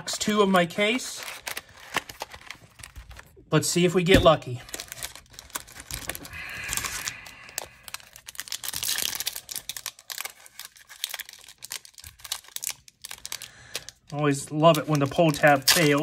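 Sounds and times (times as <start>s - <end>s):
foil wrapper crinkling and tearing: 0.0s - 3.4s, 4.4s - 16.0s.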